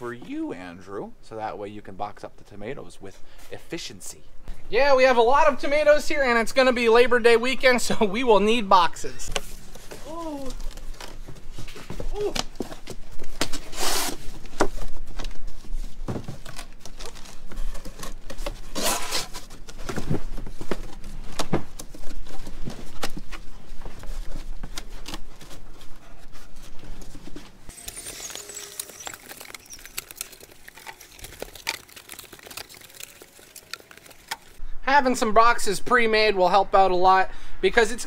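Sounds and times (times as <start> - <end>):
cardboard boxes being folded: 9.3 - 34.6.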